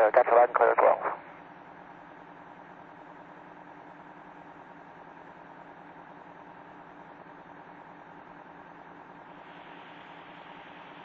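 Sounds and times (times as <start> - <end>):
faint steady tones: 0.0 - 3.7
faint steady hum: 0.0 - 11.0.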